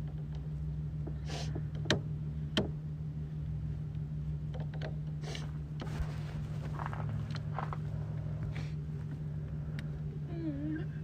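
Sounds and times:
steady low hum: 0.0 - 11.0
glove and jacket rustling: 5.8 - 8.0.

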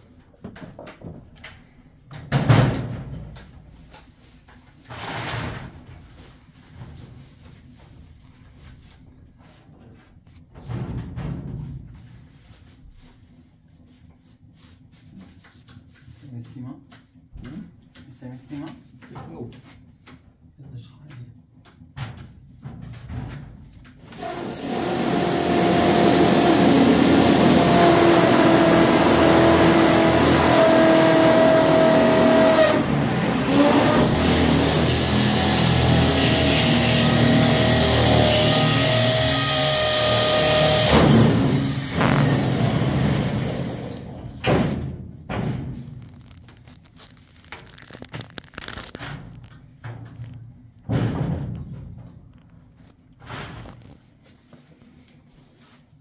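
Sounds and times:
power tool on sheet metal: 24.0 - 44.8.

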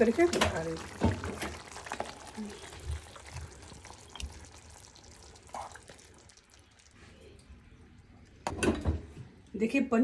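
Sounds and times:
gravy dripping softly: 1.6 - 8.4.

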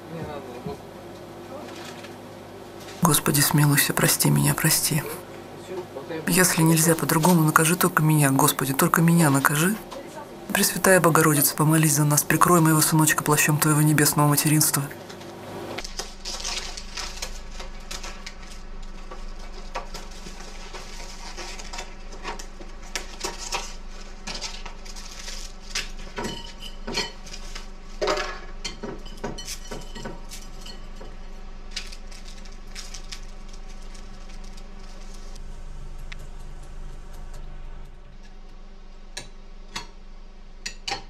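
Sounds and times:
packet rustling: 15.8 - 22.2, 31.6 - 35.4
dry noodles crunching: 15.8 - 28.0, 31.6 - 35.4.

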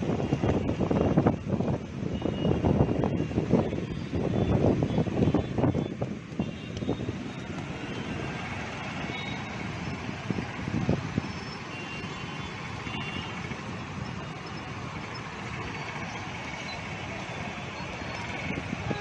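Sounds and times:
wind buffeting microphone: 0.0 - 11.8, 12.5 - 19.0
distant traffic: 0.0 - 19.0
heavy rain: 0.0 - 19.0.

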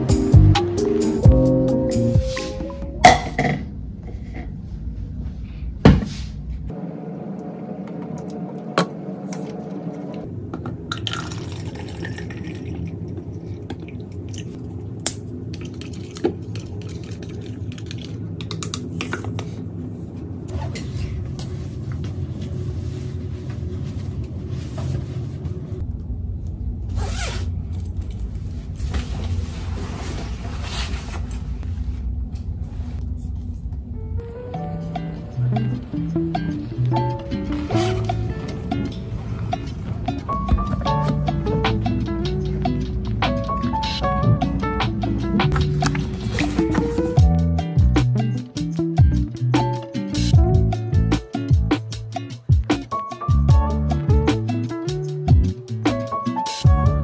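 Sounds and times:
water pouring into a cup: 10.9 - 14.7, 15.5 - 18.2.

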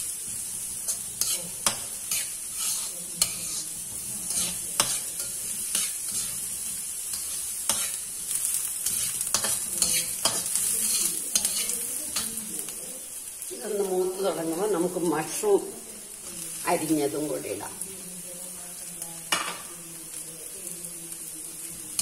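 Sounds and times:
spatula scraping a wok: 0.0 - 13.2
vegetables sizzling in hot oil: 0.0 - 22.0.

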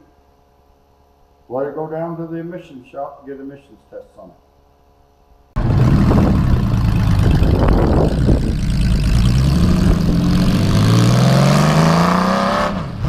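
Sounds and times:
motorcycle engine accelerating: 5.6 - 13.0.

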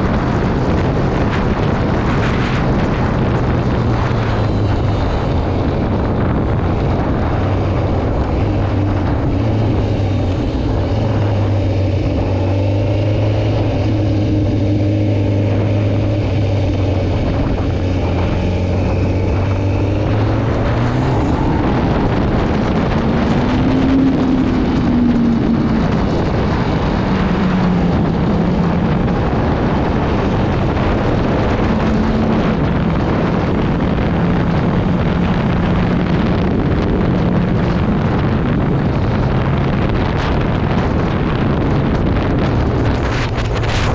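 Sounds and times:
motorcycle engine running: 0.0 - 43.9
wind rushing over microphone: 0.0 - 43.9.

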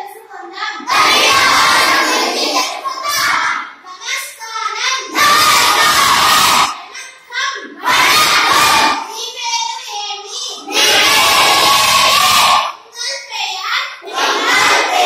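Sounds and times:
children chanting in unison: 0.8 - 4.2, 4.8 - 9.2, 10.6 - 12.8, 14.0 - 15.0.

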